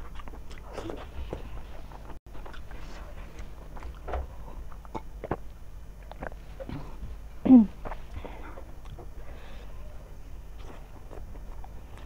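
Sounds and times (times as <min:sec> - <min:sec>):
chewing and lip-smacking: 0:00.0 - 0:06.8, 0:07.8 - 0:09.2, 0:10.6 - 0:12.0.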